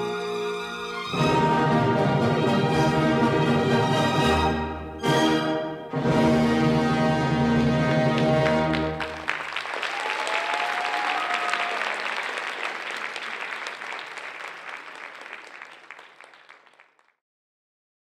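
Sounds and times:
audience applauding: 8.0 - 17.2.

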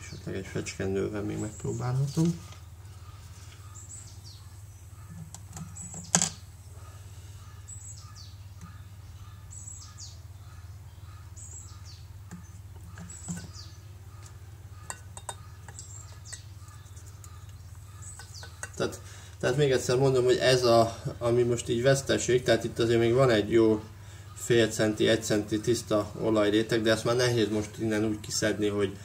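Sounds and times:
steady low hum: 0.0 - 29.0
small bird chirping: 1.2 - 19.6.

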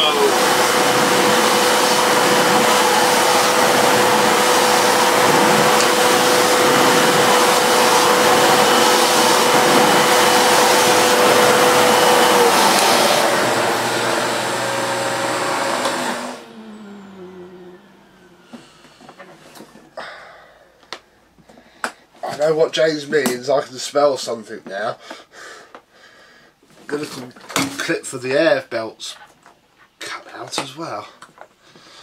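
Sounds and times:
vacuum cleaner running: 0.0 - 20.6.

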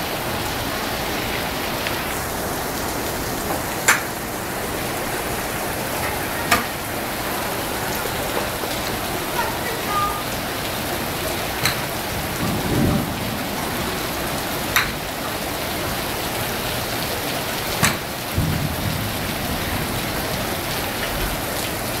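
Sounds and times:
heavy rain: 0.0 - 22.0
golf clubs striking balls: 11.6 - 12.0, 14.7 - 15.0, 17.8 - 18.0.

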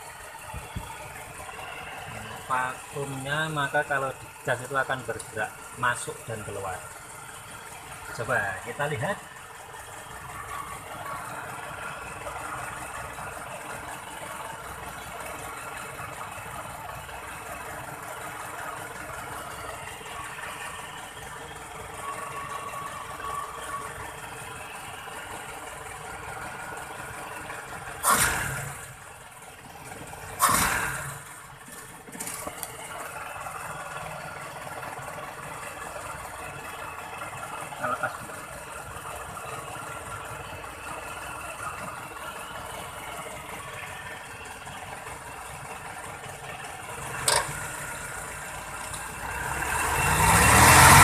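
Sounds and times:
car engine idling: 0.0 - 51.0
engine revving bursts: 28.0 - 28.9, 30.3 - 31.3, 49.2 - 51.0.

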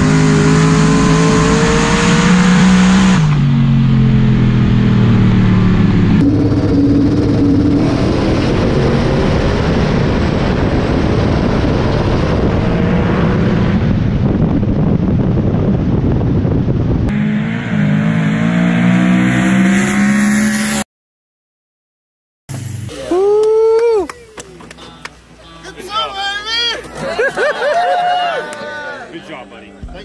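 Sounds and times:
drag car engine at full throttle: 0.0 - 20.8.

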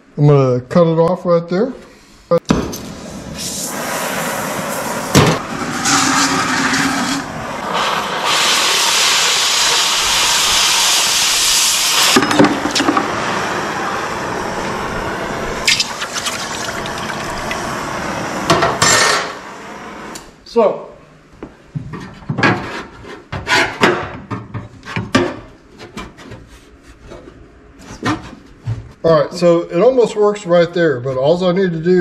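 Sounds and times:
torch blast cutting steel: 2.8 - 20.2
cutting torch hissing: 2.8 - 20.3.

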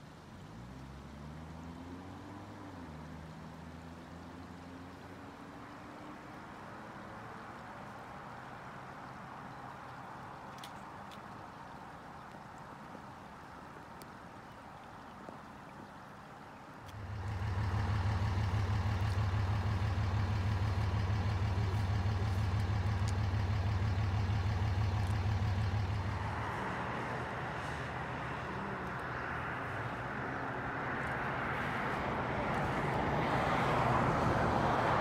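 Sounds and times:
rushing road noise: 0.0 - 35.0
vehicle engine humming: 16.2 - 35.0.

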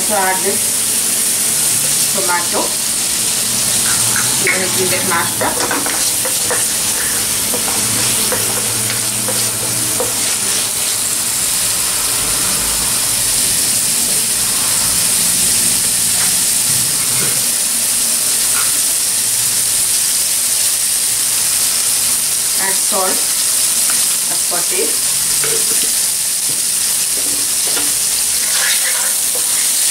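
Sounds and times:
food sizzling in hot oil: 0.0 - 29.9
wooden spatula scraping wok: 3.8 - 11.1, 27.1 - 29.9.

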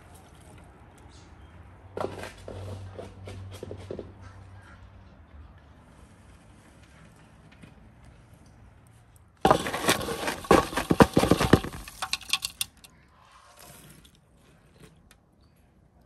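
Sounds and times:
shovel scraping charcoal in basin: 9.5 - 12.8.

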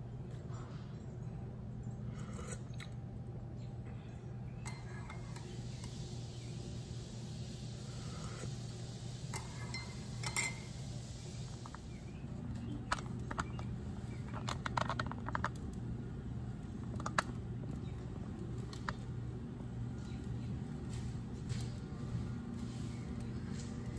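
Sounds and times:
steady low hum: 0.0 - 23.9
spoon clinking against mugs: 4.6 - 6.0, 9.3 - 10.8
crockery clinking on stone: 9.4 - 10.8.

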